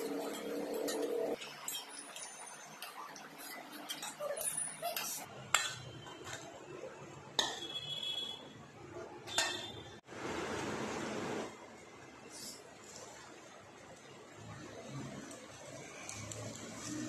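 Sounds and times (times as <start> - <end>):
metal spatula clinking on bowl: 0.1 - 6.5, 9.3 - 9.7.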